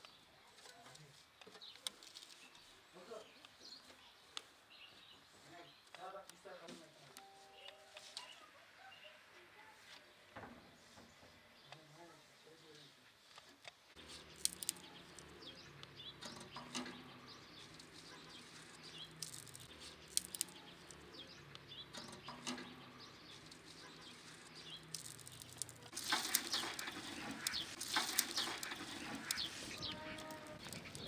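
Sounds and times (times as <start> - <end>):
twigs crackling in a stove fire: 0.0 - 7.1, 13.0 - 31.0
birds chirping: 14.0 - 31.0.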